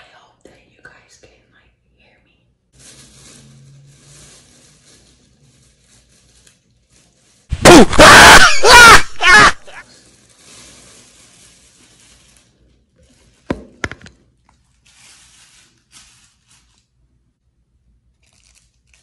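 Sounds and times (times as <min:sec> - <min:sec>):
person crying out: 0:07.6 - 0:09.8.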